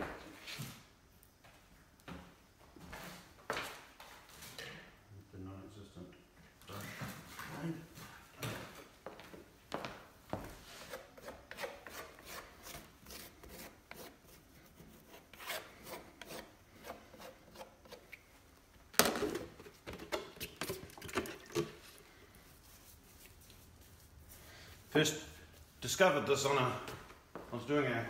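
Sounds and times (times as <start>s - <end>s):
hand scraper scraping wood: 10.8s - 18.2s.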